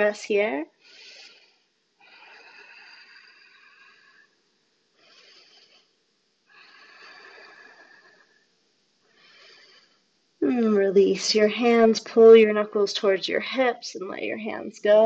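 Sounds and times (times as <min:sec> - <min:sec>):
slow hoarse breathing: 0:00.8 - 0:10.1.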